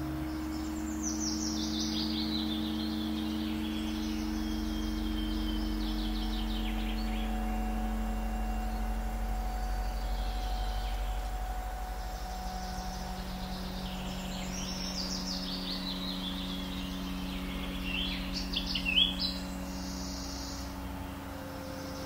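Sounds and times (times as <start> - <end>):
low drone of sustained tones: 0.0 - 22.0
high chirping bird calls: 0.5 - 20.8.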